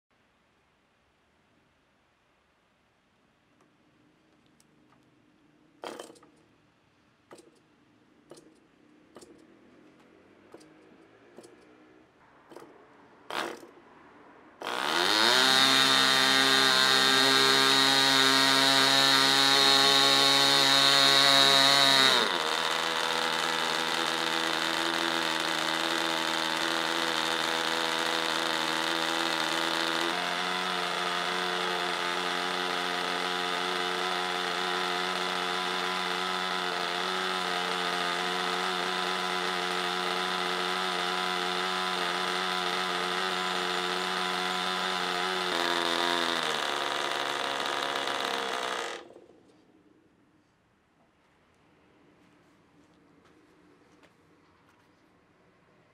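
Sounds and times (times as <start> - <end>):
model engine with propeller running: 5.8 - 6.4, 12.5 - 13.8, 14.6 - 49.6.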